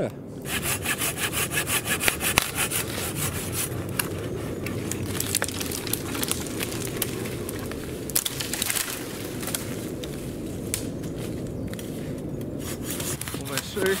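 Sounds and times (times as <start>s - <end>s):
hand saw cutting branch: 0.4s - 7.2s, 12.6s - 14.0s.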